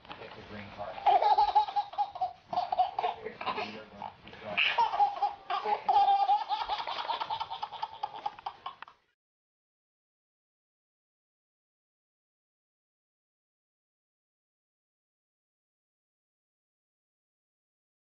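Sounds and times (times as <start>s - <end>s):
baby laughing: 1.0s - 9.1s.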